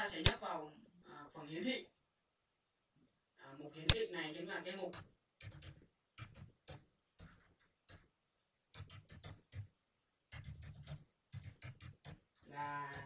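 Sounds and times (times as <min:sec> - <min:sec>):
computer keyboard typing: 0:04.9 - 0:08.1, 0:08.7 - 0:09.7, 0:10.3 - 0:13.0.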